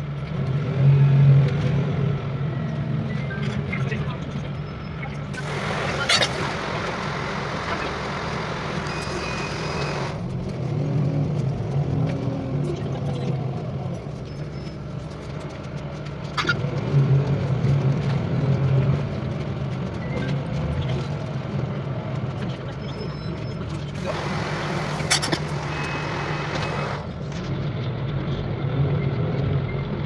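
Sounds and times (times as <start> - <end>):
bus engine hum: 0.0 - 30.0
hiss: 5.4 - 10.2, 24.0 - 27.0.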